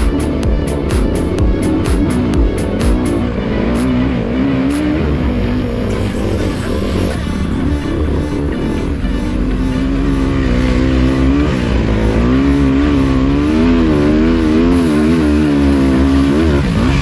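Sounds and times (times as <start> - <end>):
motorcycle engine running hard: 0.0 - 17.0
steady rushing noise: 0.0 - 17.0.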